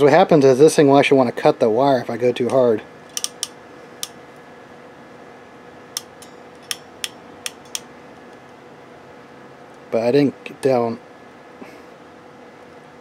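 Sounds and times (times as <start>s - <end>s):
faint steady hum: 0.0s - 13.0s
crimping tool clicking: 2.5s - 4.2s, 6.0s - 7.9s.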